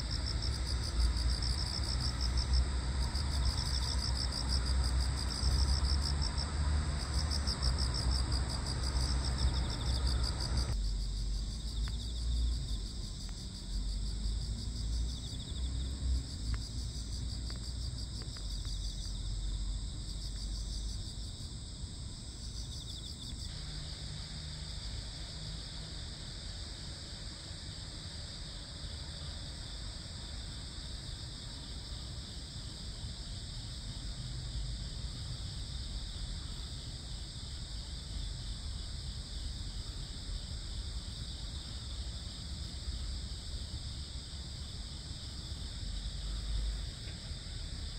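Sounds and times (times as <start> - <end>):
crickets and insects trilling: 0.0 - 47.9
rapid pulsing insect chirp: 0.0 - 47.9.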